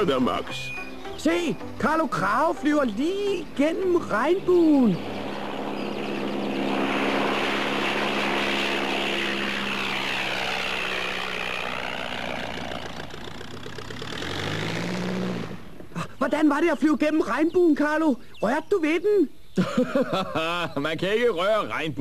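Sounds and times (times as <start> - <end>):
propeller engine in flight: 3.0 - 16.2.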